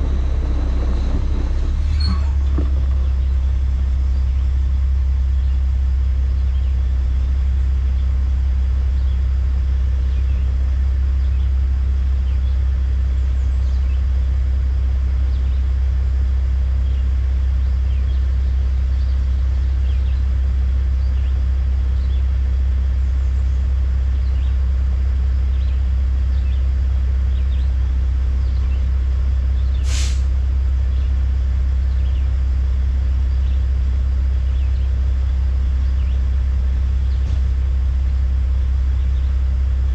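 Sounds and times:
diesel engine idling: 0.0s - 39.9s
air brake hiss: 29.8s - 30.3s.

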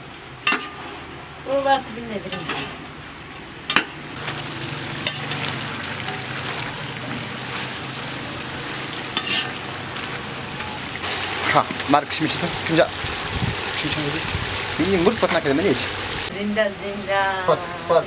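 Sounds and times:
meat sizzling in a pot: 4.2s - 16.3s.

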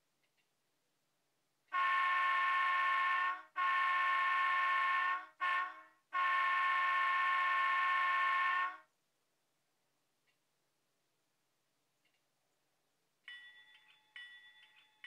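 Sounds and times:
model train diesel horn: 1.7s - 8.9s.

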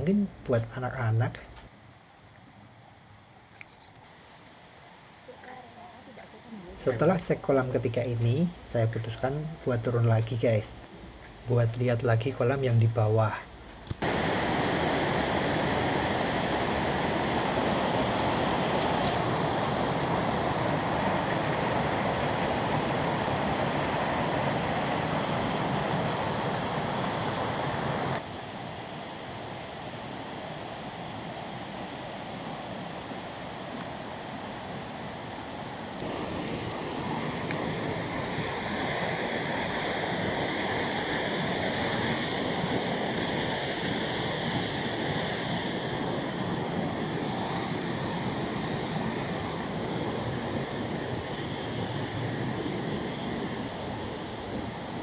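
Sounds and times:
stream rushing over rocks: 14.0s - 35.2s, 35.8s - 51.2s.

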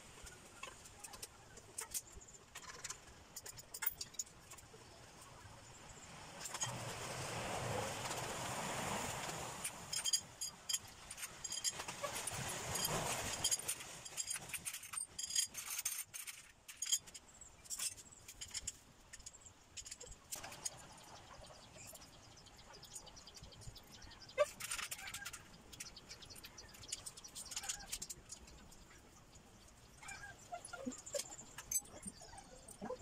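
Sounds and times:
parts and tools clinking: 0.6s - 4.6s, 9.9s - 20.8s, 30.6s - 33.0s.

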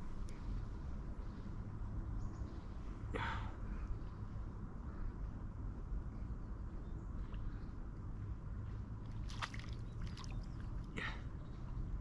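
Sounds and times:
low steady rumble: 0.0s - 12.0s
water sloshing and splashing: 9.0s - 10.9s.

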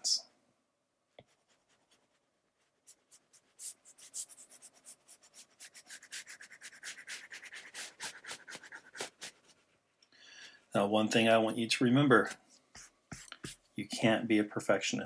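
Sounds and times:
stylus scrubbing on tablet screen: 1.2s - 9.8s, 12.2s - 13.8s.

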